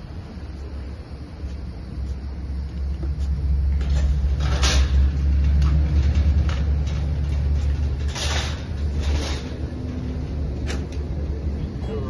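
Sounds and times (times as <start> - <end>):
low outdoor rumble: 0.0 - 12.0
knocks and clatters: 3.6 - 11.1.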